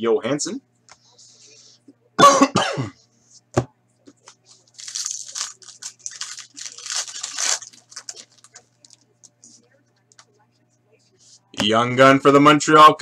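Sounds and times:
wrapper crinkling and tearing: 0:04.6 - 0:09.1.

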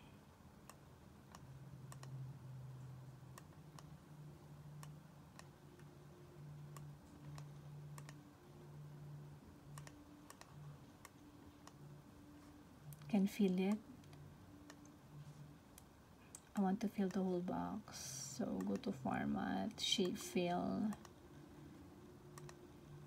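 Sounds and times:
low hum: 0:00.0 - 0:23.0
computer mouse clicking: 0:00.6 - 0:02.2, 0:03.3 - 0:04.0, 0:04.8 - 0:05.9, 0:06.7 - 0:08.2, 0:09.7 - 0:11.8, 0:12.9 - 0:15.0, 0:18.6 - 0:19.0, 0:20.9 - 0:21.2, 0:22.3 - 0:22.6.

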